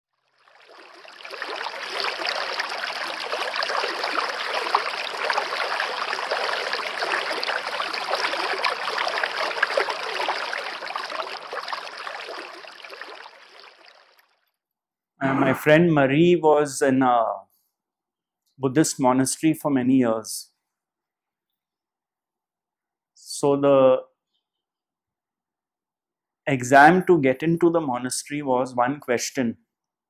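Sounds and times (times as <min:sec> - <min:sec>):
stream water rushing over stones: 0:00.5 - 0:14.2.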